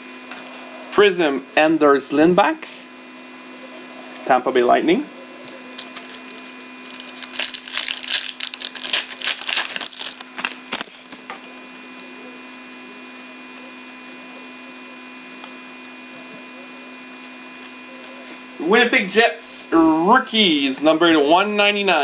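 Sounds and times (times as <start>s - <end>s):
steady electrical hum: 0.0s - 22.0s
foil pack tearing and crinkling: 5.4s - 11.2s.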